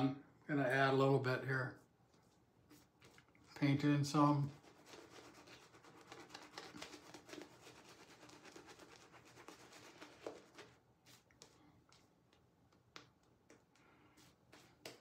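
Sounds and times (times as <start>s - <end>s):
shaving brush scrubbing lather: 3.8s - 11.2s.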